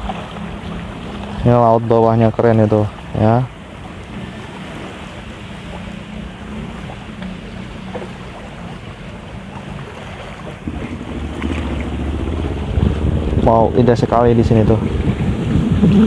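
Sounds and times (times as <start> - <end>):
low motor hum: 0.0 - 16.0
wind buffeting microphone: 10.0 - 16.0.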